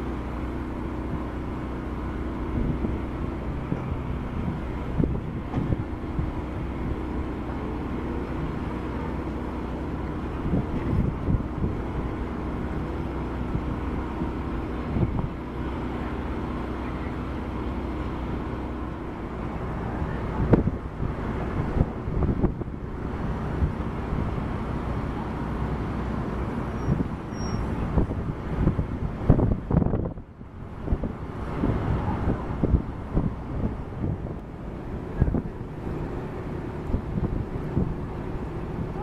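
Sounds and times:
boat engine humming: 0:00.0 - 0:39.0
wind buffeting microphone: 0:00.6 - 0:15.7, 0:17.8 - 0:25.2, 0:26.0 - 0:39.0.

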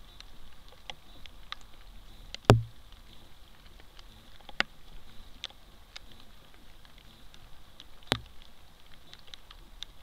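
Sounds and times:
hooves rustling twigs: 0:00.0 - 0:10.0
sharp knock: 0:02.5 - 0:02.7.

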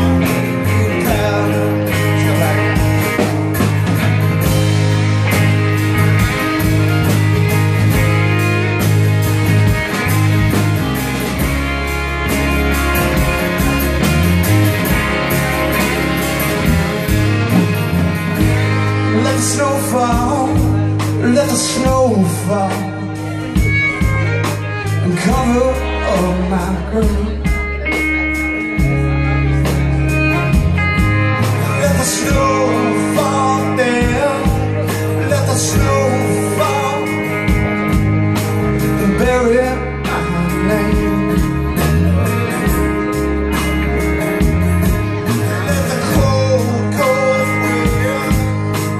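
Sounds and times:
acoustic guitar: 0:00.0 - 0:48.9
bass guitar: 0:00.0 - 0:48.9
electric guitars: 0:00.0 - 0:48.9
drum beat: 0:02.4 - 0:18.8.

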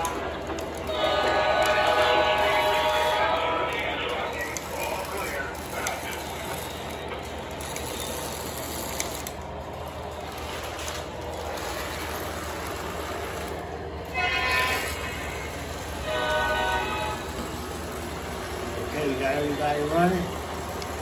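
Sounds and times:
model train wheels on track: 0:00.0 - 0:21.0
short train horn blasts: 0:00.9 - 0:03.7, 0:14.0 - 0:17.5.

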